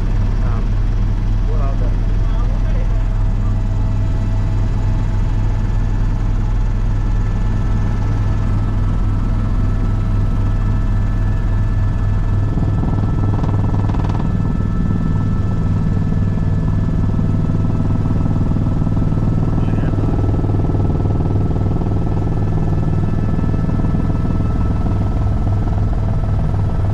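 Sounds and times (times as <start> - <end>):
helicopter main rotor beating: 0.0 - 26.9
engine and gearbox whine: 11.4 - 26.3.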